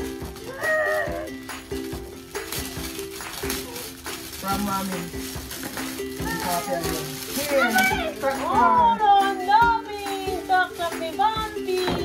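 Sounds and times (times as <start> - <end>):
music with steady beat: 0.0 - 12.0.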